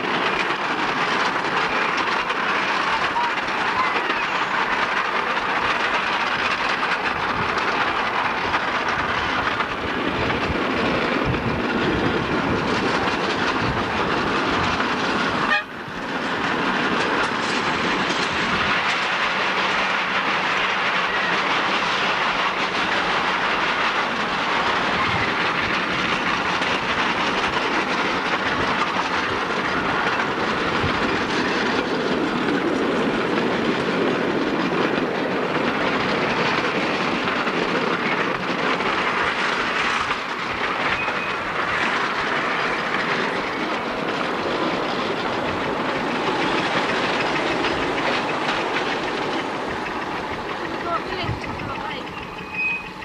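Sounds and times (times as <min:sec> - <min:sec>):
train wheels clattering on rails: 0:00.0 - 0:53.0.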